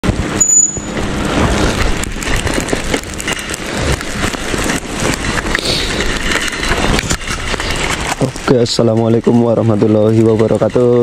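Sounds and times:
wind rushing noise: 0.0 - 9.4
low rumbling: 0.0 - 11.0
short high beep: 0.4 - 1.0.

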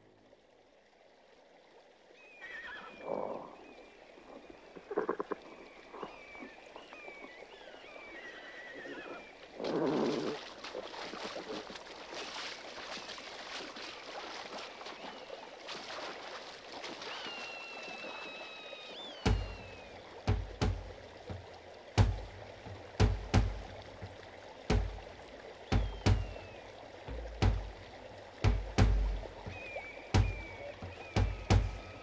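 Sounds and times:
rushing crackling water: 0.0 - 32.0
water splashing: 1.4 - 32.0
wavering animal calls: 29.5 - 32.0.

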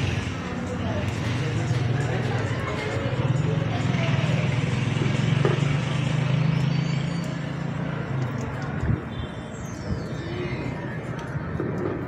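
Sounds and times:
vehicle engine humming: 0.0 - 9.0.

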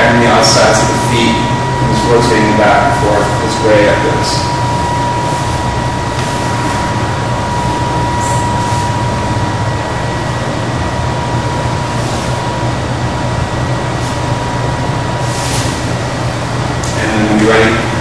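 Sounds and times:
thin high tone: 0.0 - 11.9
background hum and hiss: 0.0 - 18.0.

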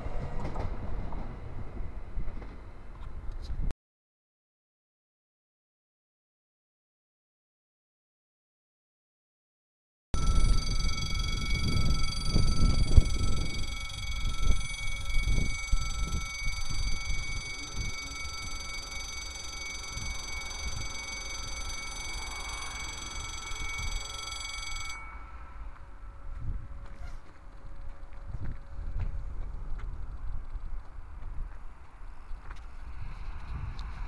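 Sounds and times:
wind rumble on microphone: 0.0 - 3.7, 10.2 - 18.9, 19.6 - 24.1, 25.4 - 34.0
level crossing warning bell: 10.2 - 29.0.

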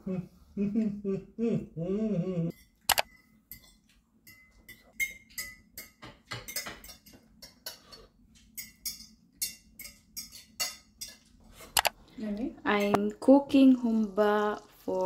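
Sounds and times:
cutlery clinking on plates: 2.5 - 11.8.

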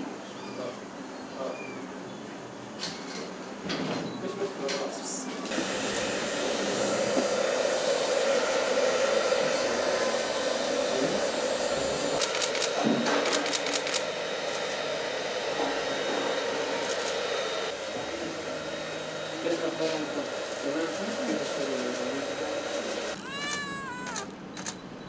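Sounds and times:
hair dryer running: 5.4 - 24.0.

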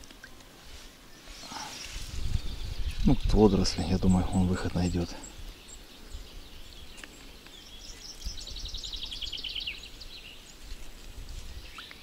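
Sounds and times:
faint bird chirps: 1.1 - 10.6
songbird trilling: 1.3 - 10.5.

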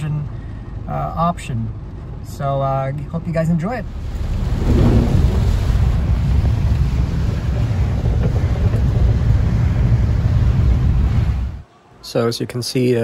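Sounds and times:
vehicle driving through heavy rain: 3.8 - 11.6
wind buffeting: 3.8 - 11.6.

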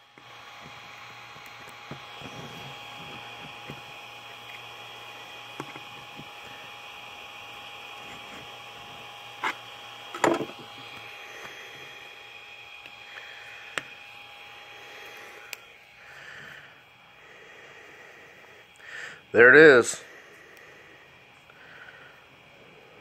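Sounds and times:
steady whine and hiss: 0.0 - 23.0
scraper scraping printer bed: 9.4 - 9.6.

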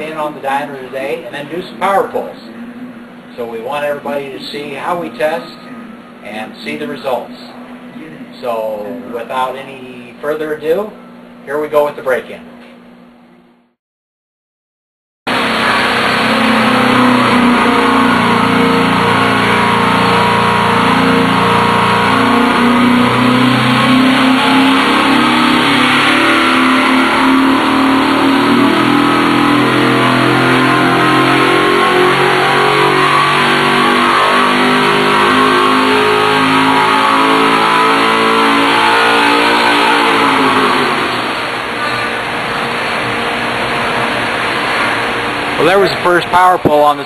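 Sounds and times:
engine revving at full throttle: 15.3 - 47.0.

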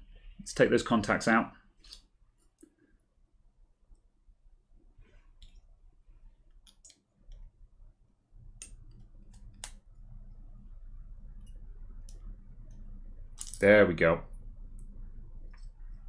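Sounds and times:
low hum: 7.4 - 13.6, 14.2 - 16.0.

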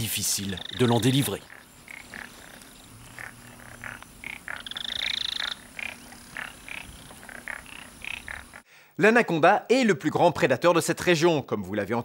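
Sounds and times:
frogs calling: 0.0 - 8.7
frog rapid high trill: 0.3 - 8.6.

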